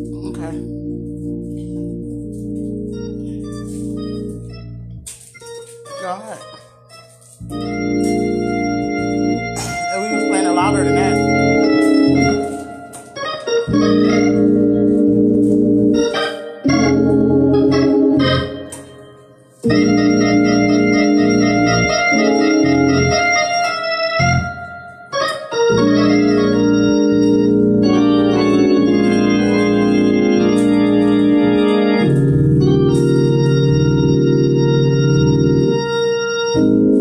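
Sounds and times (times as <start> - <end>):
bass line: 0.0 - 5.1, 7.4 - 12.5, 13.7 - 16.0, 16.7 - 18.5, 25.8 - 35.8
organ chords: 0.0 - 37.0.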